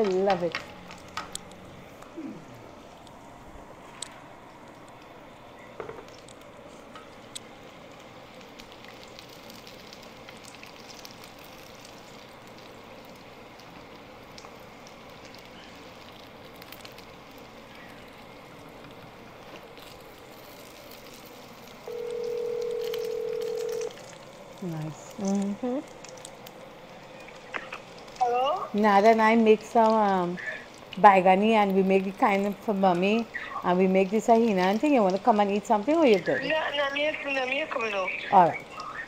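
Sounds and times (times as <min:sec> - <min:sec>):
eggplant sizzling in hot oil: 0:00.0 - 0:02.1, 0:05.8 - 0:39.0
oil crackles and pops: 0:00.0 - 0:03.2, 0:03.8 - 0:39.0
steady telephone tone: 0:21.8 - 0:24.0.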